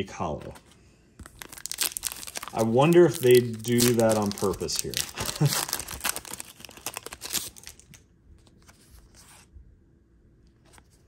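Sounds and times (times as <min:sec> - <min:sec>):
foil wrapper tearing and crinkling: 0:01.2 - 0:08.0.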